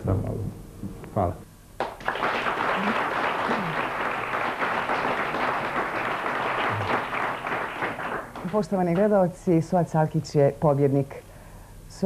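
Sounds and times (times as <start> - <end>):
audience applauding: 1.8 - 9.1.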